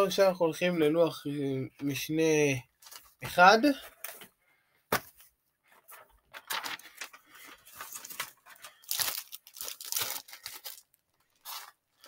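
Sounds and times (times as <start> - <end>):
paper shuffling and rustling: 2.8 - 4.3, 4.9 - 11.8.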